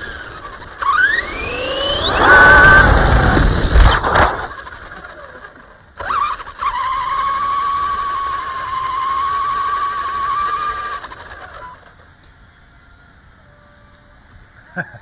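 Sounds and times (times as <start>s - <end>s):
electric motor whining: 0.0s - 12.0s.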